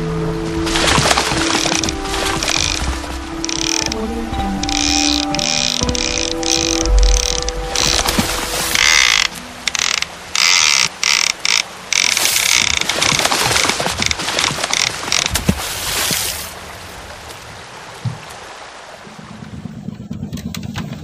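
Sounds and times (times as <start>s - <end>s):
fishing reel ratchet clicking: 4.6s - 8.0s, 8.8s - 12.8s.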